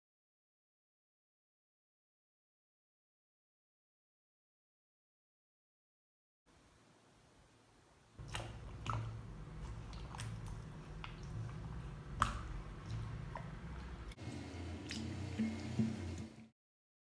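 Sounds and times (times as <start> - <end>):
wet squelching of chicken in marinade: 8.2 - 16.2.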